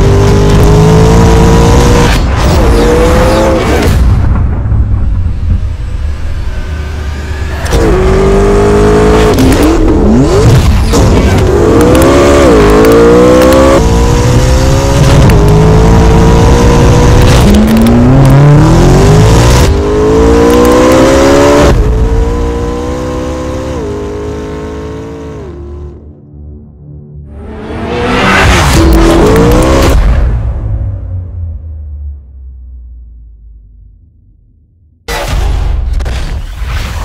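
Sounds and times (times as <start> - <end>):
sports car engine accelerating: 0.0 - 3.9, 7.2 - 26.0, 27.3 - 30.0.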